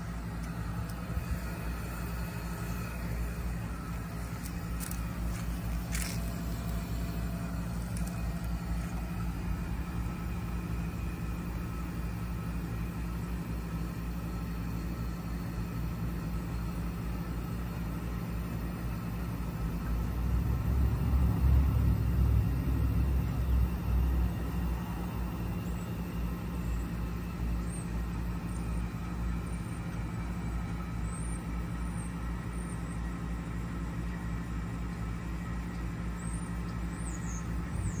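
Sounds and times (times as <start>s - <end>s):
heat pump humming: 0.0s - 38.0s.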